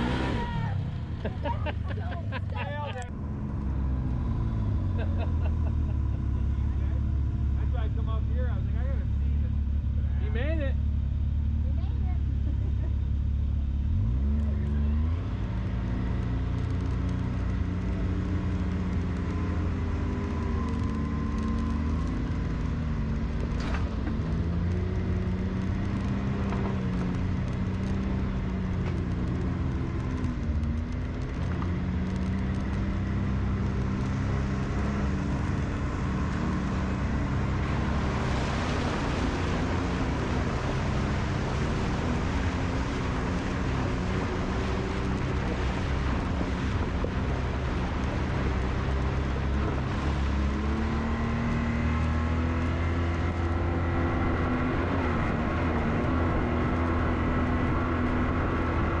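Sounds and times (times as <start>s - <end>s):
utility vehicle engine: 0.0s - 59.0s
water splashing: 32.0s - 54.7s.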